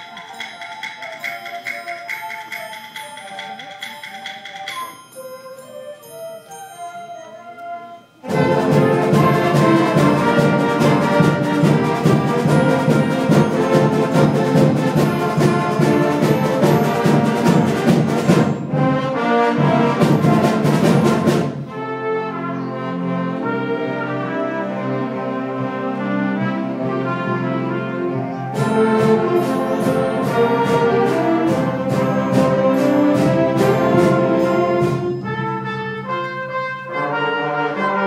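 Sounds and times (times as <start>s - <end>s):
band with brass and drums: 0.0s - 4.8s, 8.2s - 38.0s
sustained brass chords: 7.1s - 38.0s.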